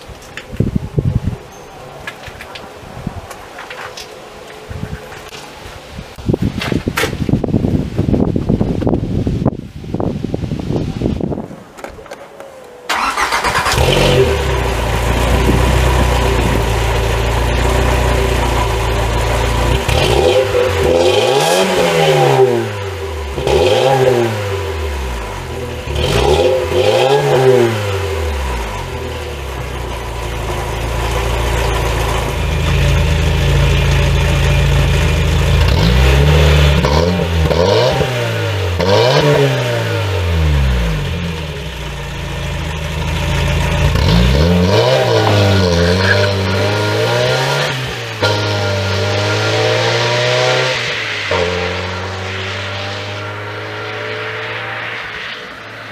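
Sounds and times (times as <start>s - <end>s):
engine idling and revving: 12.9s - 55.9s.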